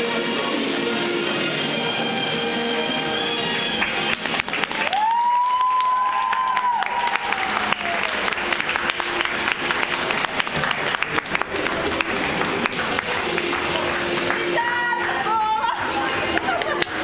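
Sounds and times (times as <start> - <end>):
audience applauding: 3.7 - 17.0.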